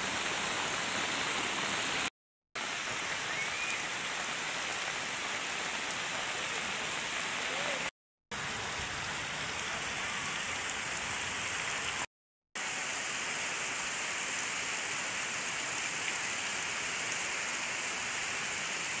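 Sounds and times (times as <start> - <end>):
heavy rain pouring on street: 0.0 - 19.0.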